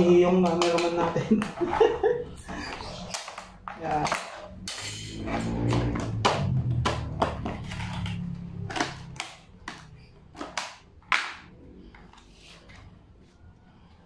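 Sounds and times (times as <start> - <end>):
plastic lid cracking and snapping: 8.7 - 11.5.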